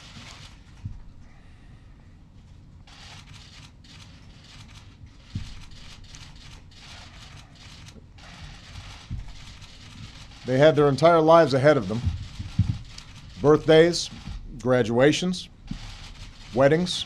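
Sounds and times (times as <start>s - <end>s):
faint rustling: 2.4s - 14.5s
soft low thump: 12.0s - 12.9s.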